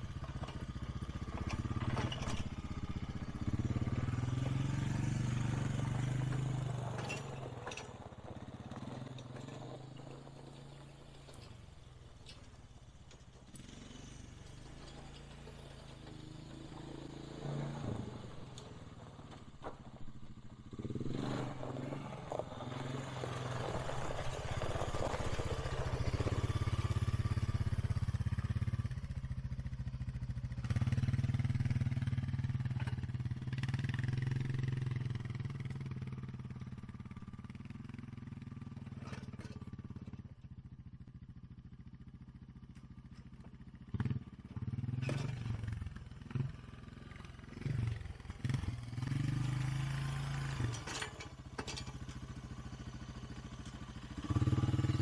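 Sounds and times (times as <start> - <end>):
blade scraping over dirt: 0.0 - 28.8, 44.0 - 55.0
atv engine running: 0.0 - 55.0.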